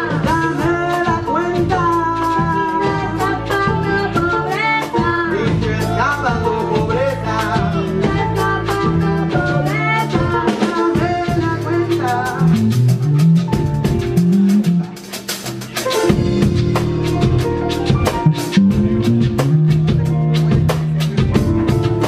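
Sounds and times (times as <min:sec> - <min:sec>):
women singing: 0:00.0 - 0:12.6
live band playing: 0:00.0 - 0:22.0.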